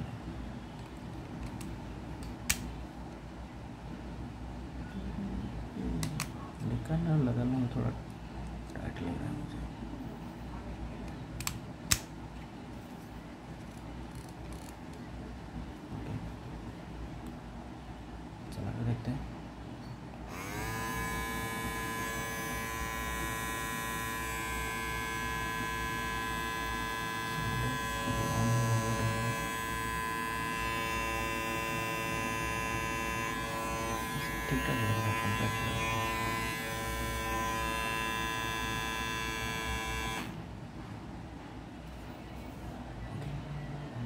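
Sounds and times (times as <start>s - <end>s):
electric beard trimmer buzzing: 20.3s - 40.4s.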